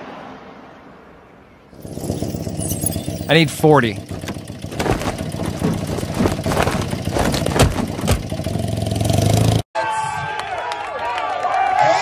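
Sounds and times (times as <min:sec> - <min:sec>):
car engine idling: 0:01.8 - 0:09.1
knocks and bangs: 0:04.1 - 0:08.5.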